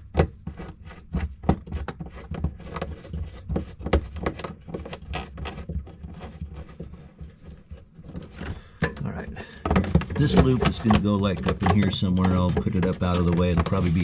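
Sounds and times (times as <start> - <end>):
metal hardware clicking and tapping: 8.4 - 13.7.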